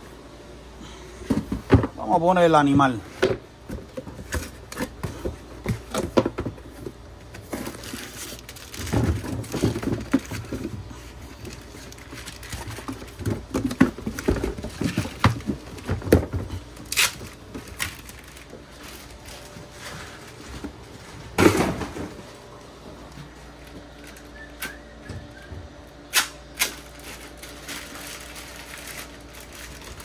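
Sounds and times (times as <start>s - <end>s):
packaging rustling and scraping: 3.7s - 30.0s
plastic wrap crinkle: 7.4s - 15.9s, 16.6s - 21.1s, 26.6s - 30.0s.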